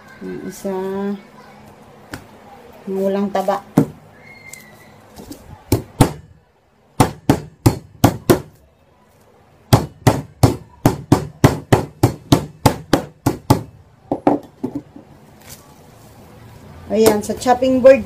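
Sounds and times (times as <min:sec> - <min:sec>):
meat mallet pounding meat: 0:05.7 - 0:06.3, 0:07.0 - 0:08.6, 0:09.7 - 0:13.8.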